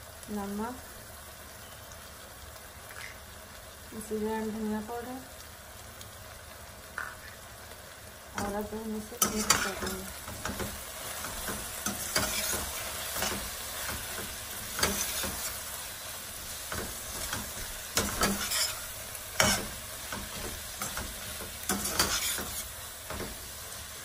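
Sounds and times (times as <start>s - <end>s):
vegetables sizzling in oil: 0.0s - 24.0s
metal spoon scraping a pan: 9.2s - 15.7s, 16.7s - 23.4s.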